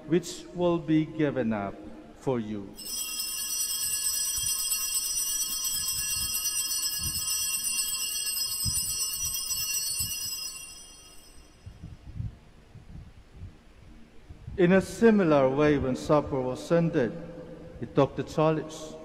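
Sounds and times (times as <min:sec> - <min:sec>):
altar bells ringing: 0:02.8 - 0:11.8.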